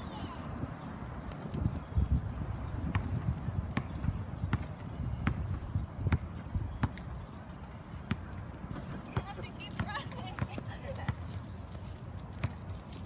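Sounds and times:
wind rumble on microphone: 0.0 - 7.2
footsteps on asphalt: 0.0 - 13.0.

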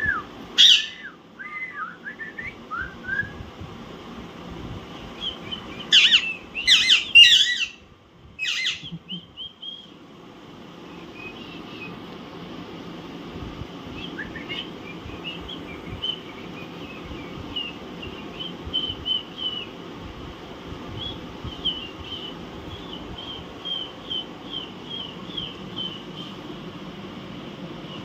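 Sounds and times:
low background hum: 0.0 - 28.0
parakeets chirping: 0.6 - 1.0, 5.2 - 7.8, 8.4 - 10.0, 21.1 - 26.5.

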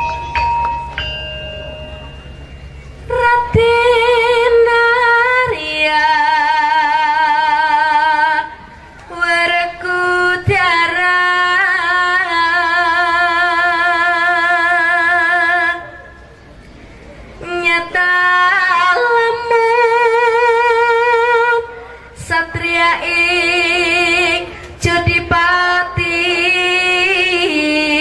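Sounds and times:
bell-like chimes: 0.0 - 3.2
woman singing with vibrato: 2.9 - 16.1, 17.4 - 28.0.

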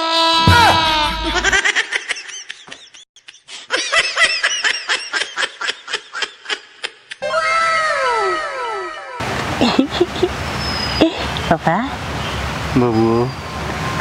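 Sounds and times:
high-pitched giggling laughter: 0.5 - 7.3, 8.0 - 10.4.

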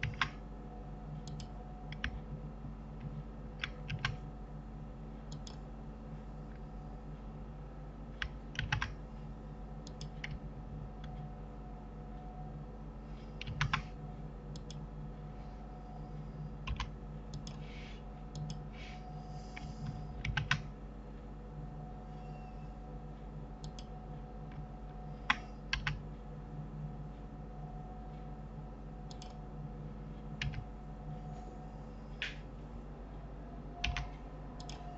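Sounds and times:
keyboard and mouse clicking: 0.0 - 0.4, 1.2 - 2.3, 3.0 - 4.2, 5.3 - 5.6, 8.2 - 9.0, 9.8 - 10.4, 13.4 - 14.8, 16.6 - 17.6, 18.3 - 18.6, 19.5 - 20.7, 23.6 - 23.9, 25.2 - 26.0, 29.1 - 29.4, 30.4 - 30.7, 32.2 - 32.4, 33.8 - 34.9
steady low hum: 0.0 - 34.9.

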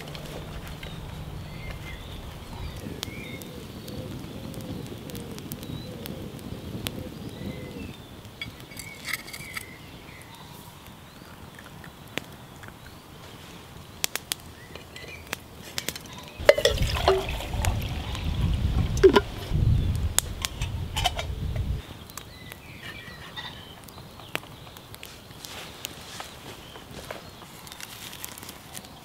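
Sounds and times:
campfire wood crackling: 0.0 - 29.0
water glugging into metal mug: 16.4 - 19.5.

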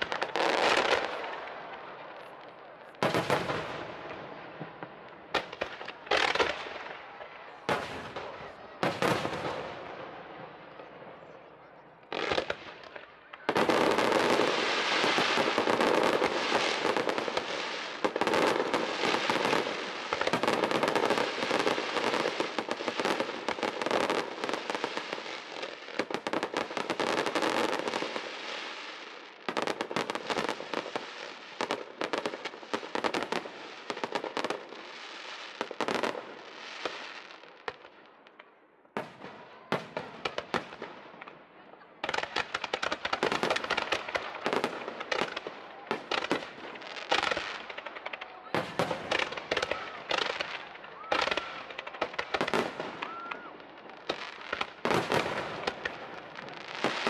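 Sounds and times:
firework bangs and cracks: 0.0 - 11.4, 12.0 - 57.0
fireworks bursts and crackling: 0.0 - 57.0.

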